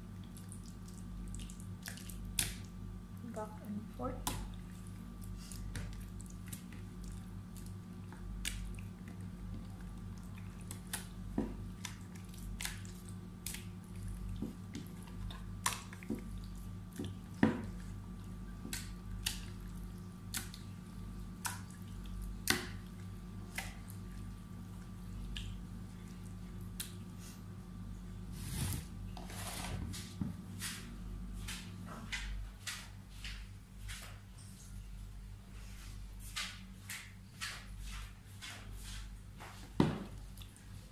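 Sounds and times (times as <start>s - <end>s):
hands squelching marinade on fish: 0.0s - 3.1s, 4.1s - 27.6s
steady low hum: 0.0s - 40.9s.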